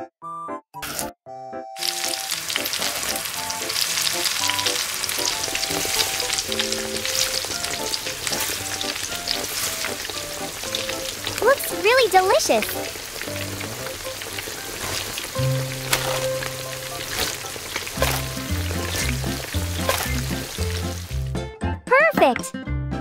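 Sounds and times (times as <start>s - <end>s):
chicken deep-frying in oil: 1.8s - 21.4s.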